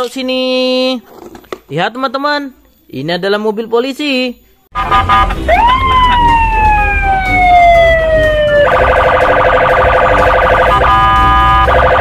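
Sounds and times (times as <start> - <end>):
police siren wailing: 4.8 - 12.0.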